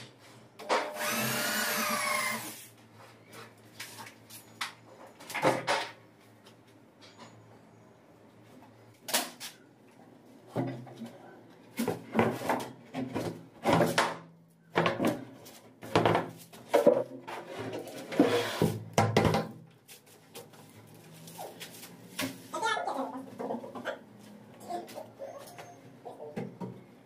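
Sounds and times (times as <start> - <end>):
plywood scraping on floor: 16.7 - 18.8.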